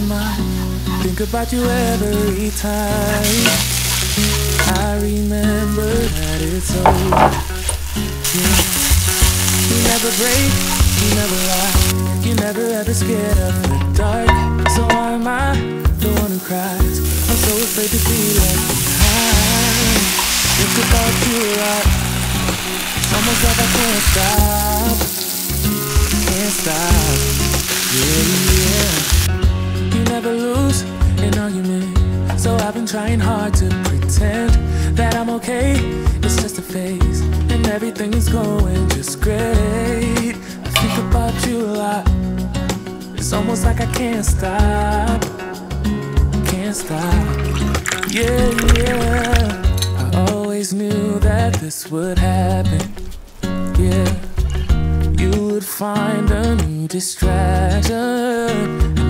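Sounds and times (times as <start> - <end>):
vegetables sizzling in a pan: 0.0 - 29.3
song with singing: 0.0 - 59.0.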